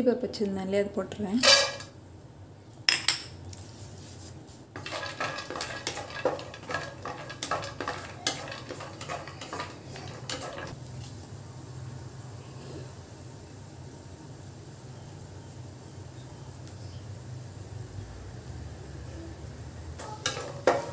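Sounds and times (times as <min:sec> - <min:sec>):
wooden spatula scraping a pan: 0:04.2 - 0:10.8, 0:20.0 - 0:20.9.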